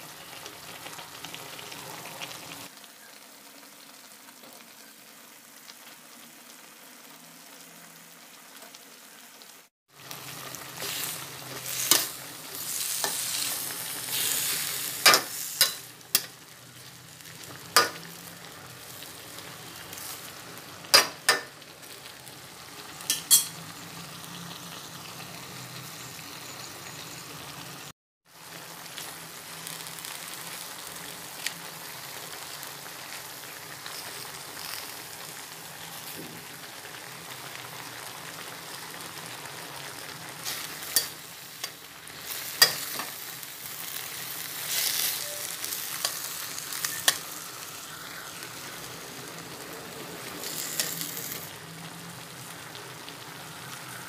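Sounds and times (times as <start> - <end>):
food sizzling in a wok: 0.0 - 54.0
metal spatula scraping wok: 23.1 - 23.6.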